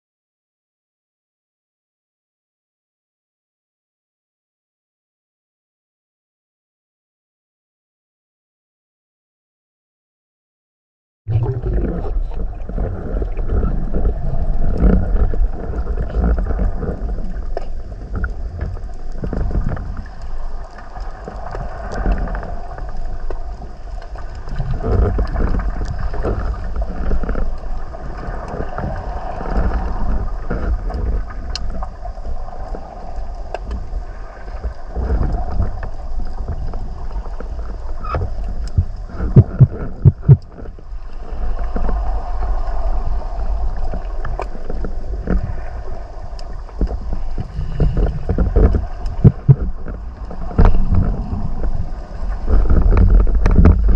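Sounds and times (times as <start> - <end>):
underwater rumble of moving water: 11.3 - 53.9.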